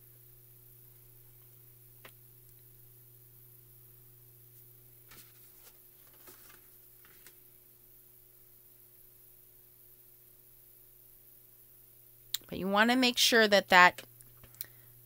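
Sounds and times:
faint steady hum: 0.0s - 15.0s
card stock rustling: 5.1s - 7.4s.

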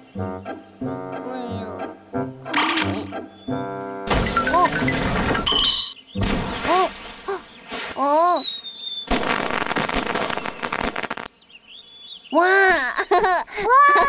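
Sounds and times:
fireworks crackling: 9.1s - 11.3s.

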